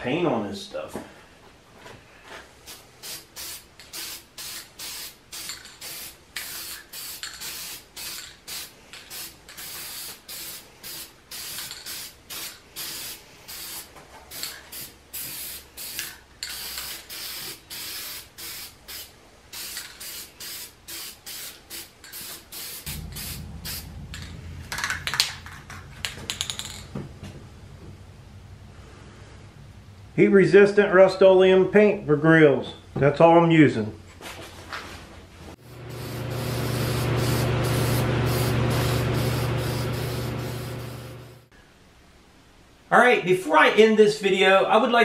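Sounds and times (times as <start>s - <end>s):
aerosol can spraying: 2.7s - 23.8s, 35.6s - 41.4s
low rumble: 22.8s - 30.1s.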